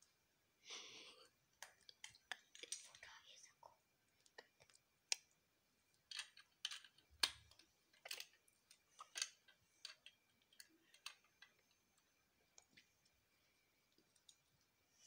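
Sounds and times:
plastic bricks clicking: 0:06.1 - 0:11.6.

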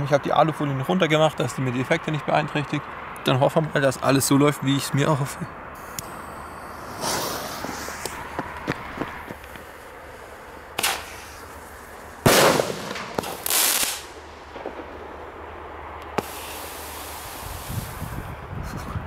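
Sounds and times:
fireworks popping and blasting: 0:05.8 - 0:18.5.

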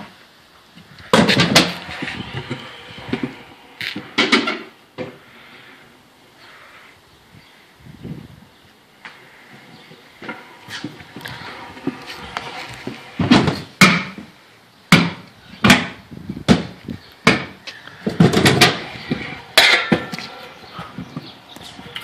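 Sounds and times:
scooter wheels rolling: 0:00.8 - 0:06.0, 0:09.0 - 0:13.9, 0:17.6 - 0:22.0
scooter smacking on concrete: 0:14.9 - 0:21.6.

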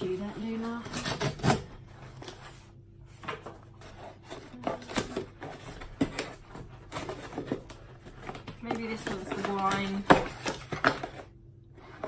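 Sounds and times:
packaging knocks and rustles: 0:03.2 - 0:11.4.

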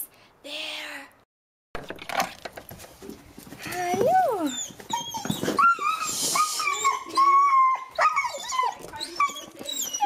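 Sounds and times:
dogs whining and yipping: 0:04.1 - 0:10.0.

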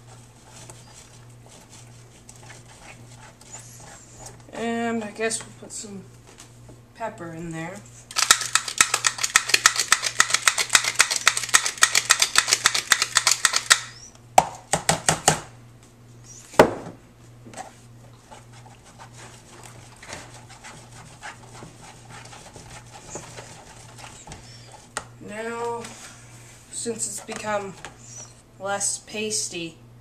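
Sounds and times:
pepper mill grinding clicks: 0:08.1 - 0:13.9
spatula scraping plastic tub: 0:17.6 - 0:25.0, 0:26.9 - 0:28.1.

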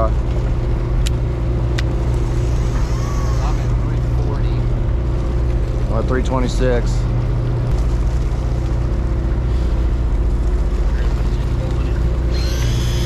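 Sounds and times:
boat engine idling: 0:00.0 - 0:13.0
electric reel motor whine: 0:01.8 - 0:04.3, 0:10.8 - 0:13.0.

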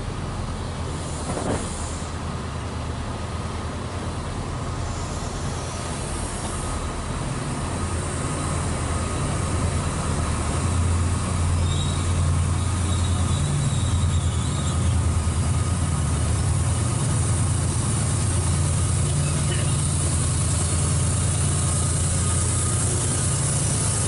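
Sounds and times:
diesel locomotive engine hum: 0:00.0 - 0:24.0
high wheel squeal: 0:11.5 - 0:15.2, 0:19.1 - 0:24.0.

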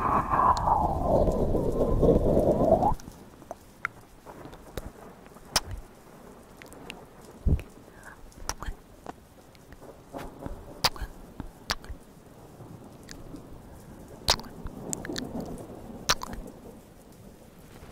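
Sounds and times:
soft mouth smacks and tongue ticks: 0:02.8 - 0:04.9, 0:05.5 - 0:05.9, 0:06.6 - 0:12.1, 0:13.0 - 0:13.4, 0:14.3 - 0:16.5
wet mouth clicks and pops: 0:02.8 - 0:04.9, 0:05.5 - 0:05.8, 0:06.6 - 0:08.8, 0:09.6 - 0:09.8, 0:10.4 - 0:12.0, 0:13.1 - 0:13.3, 0:14.3 - 0:16.5.

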